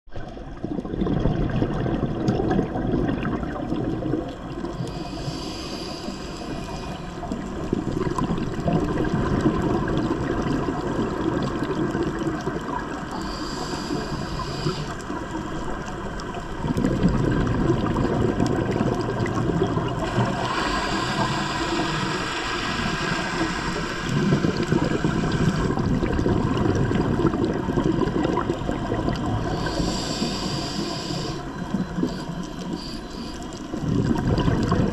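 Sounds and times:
exhaled bubbles burbling: 0:00.1 - 0:34.9
regulator hissing inhale: 0:04.6 - 0:07.6, 0:13.0 - 0:15.4, 0:20.0 - 0:26.0, 0:29.4 - 0:34.0.

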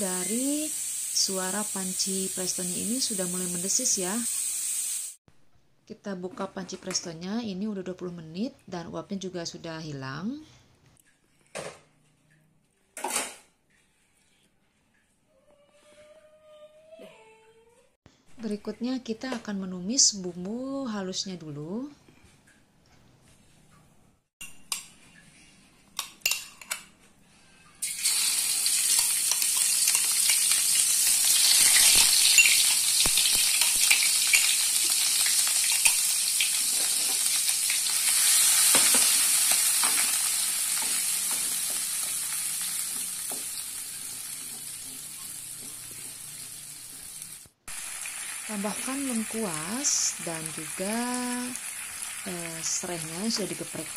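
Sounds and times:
spice paste sizzling in hot oil: 0:00.0 - 0:05.2, 0:27.8 - 0:53.9.

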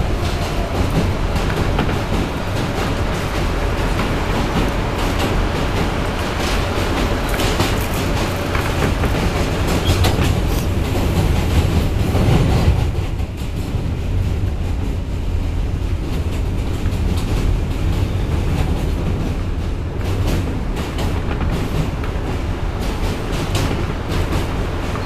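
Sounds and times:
wheels clicking over track: 0:00.0 - 0:13.6
subway car low rumble: 0:00.0 - 0:25.0.

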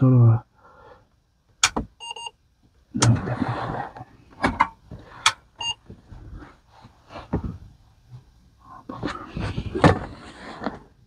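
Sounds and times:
sharp switch clicks: 0:01.6 - 0:01.8.

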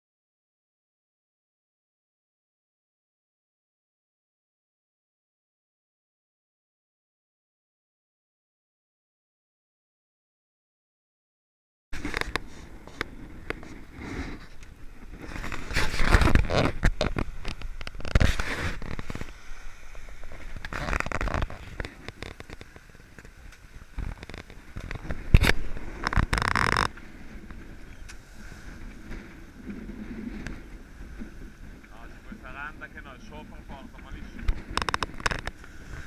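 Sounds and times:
knocks and scrapes: 0:12.0 - 0:23.4, 0:24.0 - 0:27.8, 0:34.2 - 0:36.0
water splashing along hull: 0:12.0 - 0:36.0
wind on microphone: 0:12.0 - 0:36.0.

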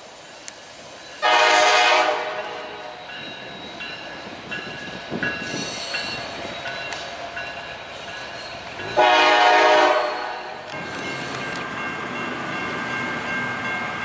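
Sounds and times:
passing freight train: 0:00.0 - 0:14.0
locomotive horn blast: 0:01.2 - 0:03.0, 0:09.0 - 0:10.5.

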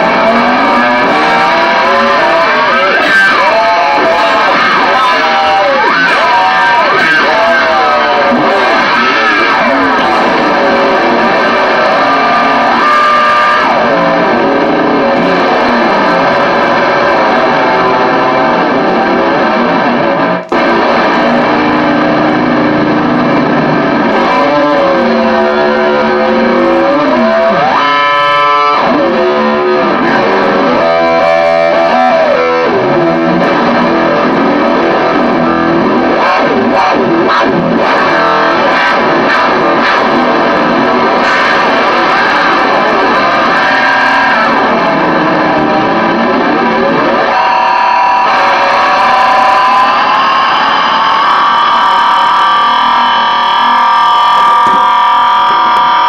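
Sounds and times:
distorted electric guitar: 0:00.0 - 0:56.0.

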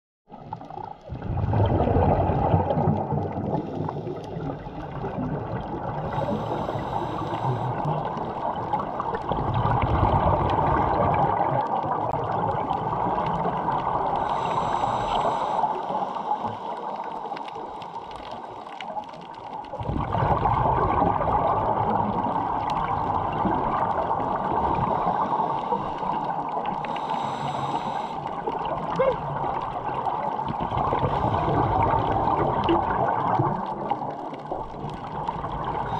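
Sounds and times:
diver exhaling bubbles: 0:00.3 - 0:17.9, 0:18.8 - 0:35.9
muffled water noise: 0:00.3 - 0:35.9
regulator inhalation hiss: 0:06.0 - 0:08.4, 0:14.2 - 0:18.7, 0:24.8 - 0:26.2, 0:26.8 - 0:28.3.

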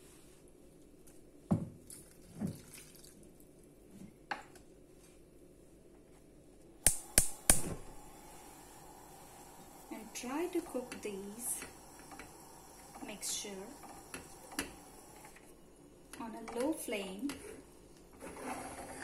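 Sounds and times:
water pouring and dripping: 0:01.9 - 0:03.4.

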